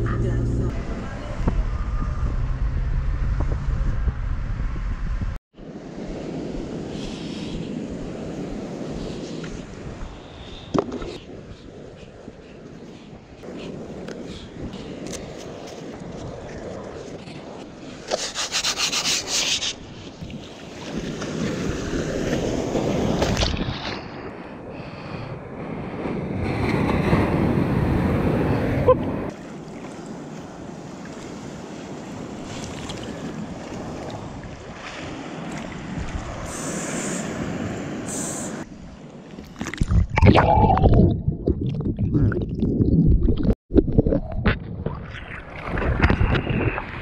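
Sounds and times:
breaking surf and rushing water: 5.5s - 41.4s.

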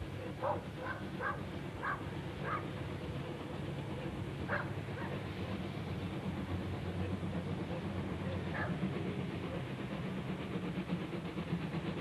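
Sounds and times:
dog barking: 0.4s - 2.6s, 4.5s - 5.1s, 8.5s - 8.8s.

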